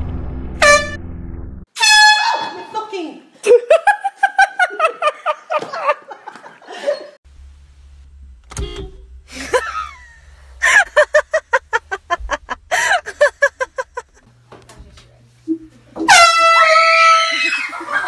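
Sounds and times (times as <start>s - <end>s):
women laughing hard: 3.5s - 7.2s, 9.4s - 14.2s, 16.7s - 18.0s
low steady engine hum: 7.3s - 14.3s.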